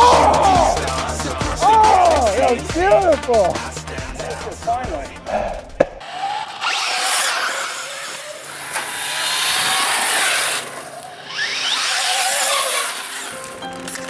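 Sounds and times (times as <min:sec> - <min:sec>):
toy truck motor whining: 0:06.0 - 0:14.0.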